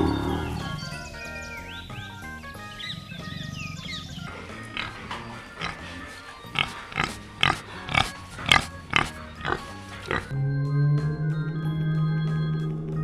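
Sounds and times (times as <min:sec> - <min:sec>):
pig grunting: 0:02.8 - 0:10.4.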